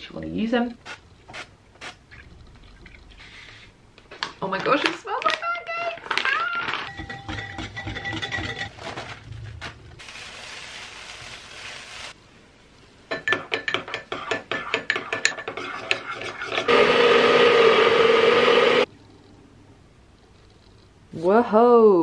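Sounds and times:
spoon scraping in ramekin: 6.9s - 8.7s, 13.3s - 16.7s
blender running: 16.7s - 18.9s.

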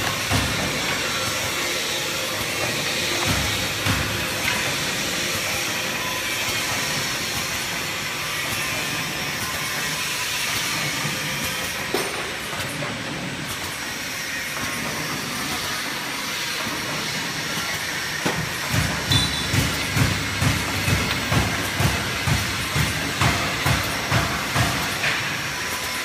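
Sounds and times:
packing machine clatter with hiss: 0.0s - 26.0s
regular machine knocking: 18.5s - 25.3s.

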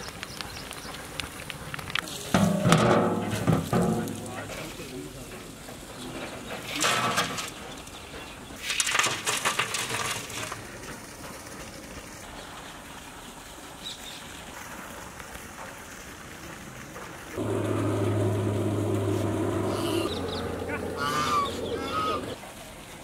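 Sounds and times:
charcoal embers rattling on metal lid: 0.0s - 12.2s, 17.2s - 21.0s
loud low buzzing drone: 17.4s - 22.4s.

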